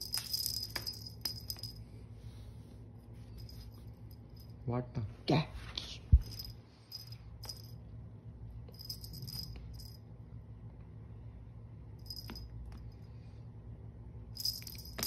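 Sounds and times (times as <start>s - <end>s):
cat toy jingling and rattling: 0.0s - 1.8s, 6.1s - 7.8s, 8.7s - 10.0s, 14.4s - 15.0s
low steady hum: 0.0s - 15.0s.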